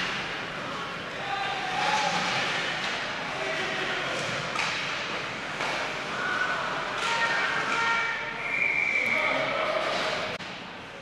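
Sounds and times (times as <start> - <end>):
hockey sticks clacking on puck: 1.7 - 6.1, 6.8 - 8.0.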